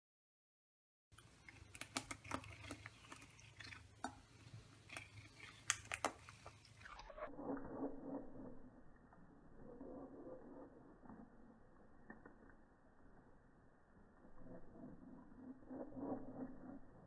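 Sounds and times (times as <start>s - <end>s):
cat chewing hairbrush bristles: 1.2s - 8.3s.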